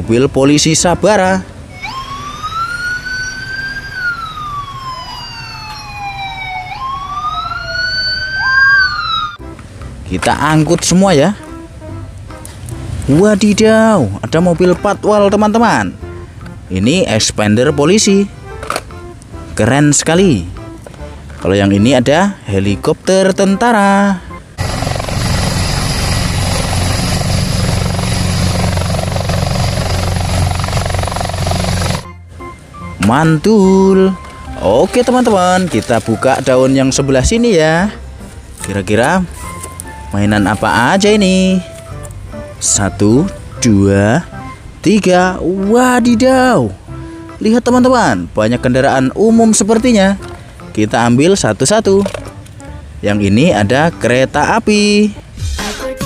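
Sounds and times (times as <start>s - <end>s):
police sirens wailing: 1.6s - 9.4s, 24.5s - 36.5s
helicopter rotor and turbine: 1.7s - 9.4s, 24.6s - 32.2s.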